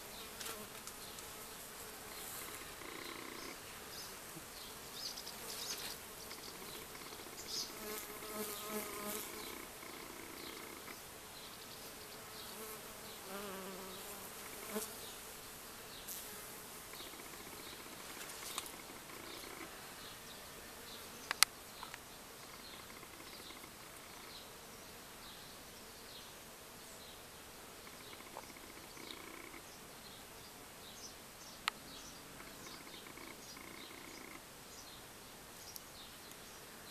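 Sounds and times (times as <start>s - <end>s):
honeybees buzzing: 0.0s - 27.1s.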